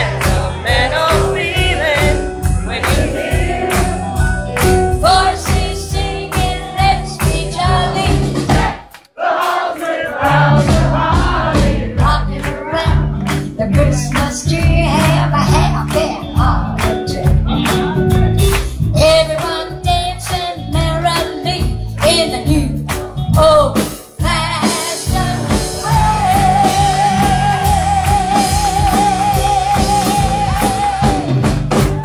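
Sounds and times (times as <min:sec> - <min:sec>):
live rock and roll band: 0:00.0 - 0:32.0
woman singing: 0:05.0 - 0:08.3, 0:12.0 - 0:18.2, 0:19.0 - 0:31.6.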